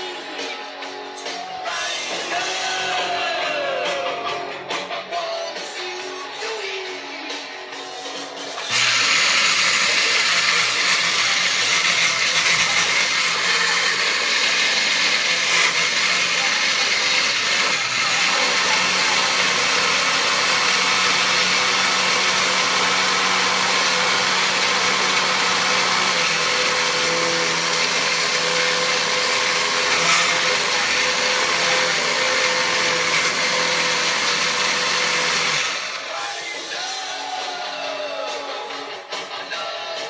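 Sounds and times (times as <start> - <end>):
electric coffee grinder whirring: 8.6 - 36.3.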